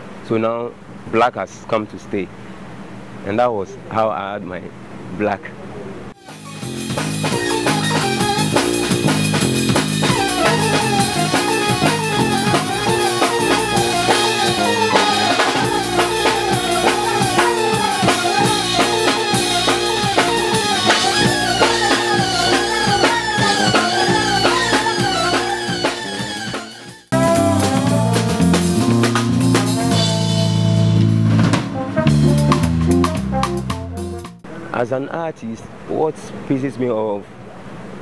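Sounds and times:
drum kit and cymbals: 6.2s - 34.4s
jazz band music: 6.2s - 34.5s.

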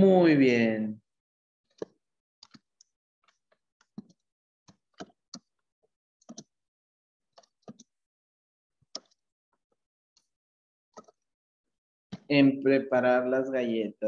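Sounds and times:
keyboard keys clicking: 6.3s - 6.5s.

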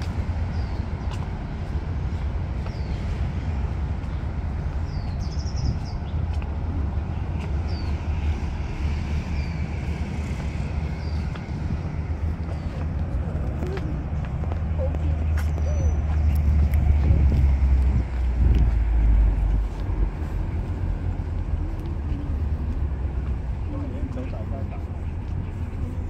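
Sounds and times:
road traffic rumble: 0.0s - 26.0s.

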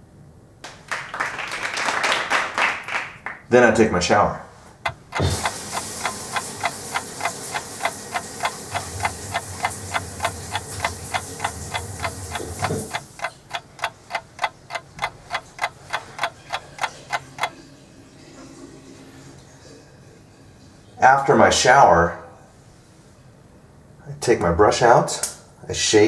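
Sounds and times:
steady hiss: 4.5s - 17.5s
clock ticking: 4.8s - 17.6s.

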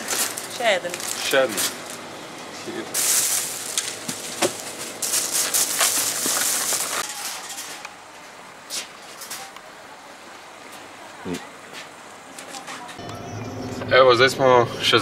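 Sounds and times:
plastic bags rustling: 0.0s - 2.1s, 2.7s - 8.2s.

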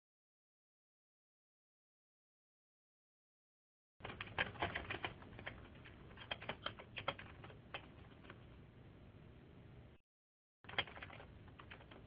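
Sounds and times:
typing on computer keyboard: 4.0s - 8.5s, 10.7s - 12.0s
steady low hum: 4.0s - 10.0s.

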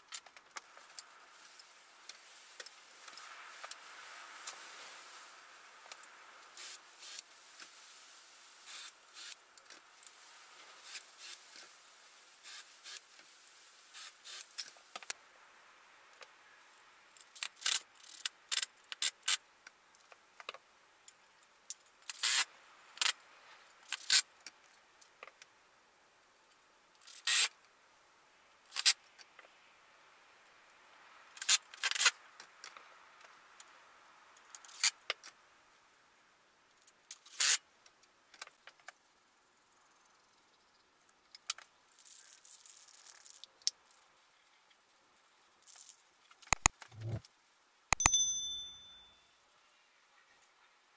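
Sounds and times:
aerosol spray can hiss: 6.5s - 9.4s, 12.4s - 13.1s, 13.9s - 14.5s.

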